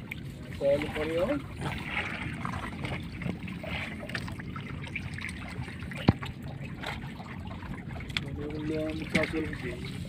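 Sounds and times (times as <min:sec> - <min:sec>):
wet net being hauled: 0:00.0 - 0:07.2
steady low hum: 0:00.0 - 0:10.0
water trickling and dripping: 0:00.0 - 0:10.0.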